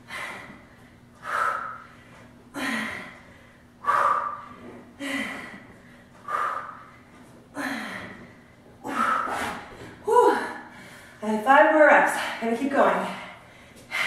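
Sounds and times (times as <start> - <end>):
woman breathing hard: 0.0 - 11.2, 13.0 - 14.0
woman grunting: 10.0 - 10.7.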